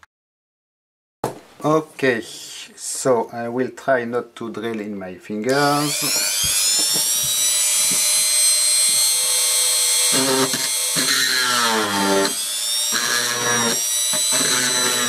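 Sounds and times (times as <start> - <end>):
electric drill whining: 5.6 - 15.0
lower hum of drill under load: 5.6 - 15.0.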